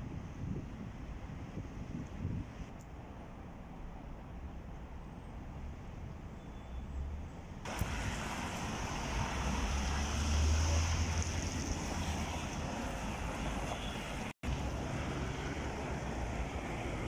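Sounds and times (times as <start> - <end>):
cars driving past: 6.8 - 17.0.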